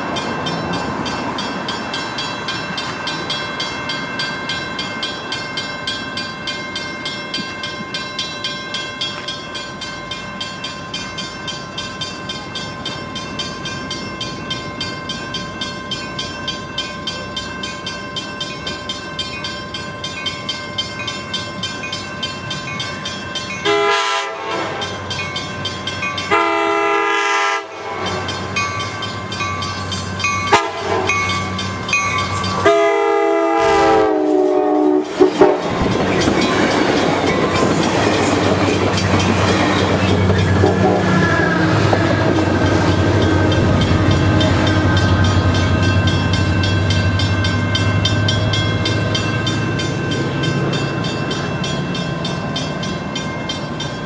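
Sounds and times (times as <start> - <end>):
railroad crossing bell ringing: 0.0 - 54.0
train rumble: 0.0 - 54.0
train horn: 23.6 - 25.0, 26.3 - 28.2, 30.5 - 31.2, 32.6 - 35.8, 40.5 - 42.8.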